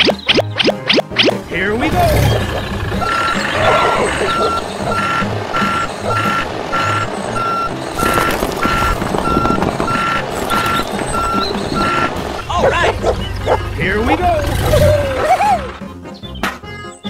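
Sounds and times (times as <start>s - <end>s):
low rumble: 1.4s - 15.2s
reversing alarm beeping: 2.1s - 13.6s.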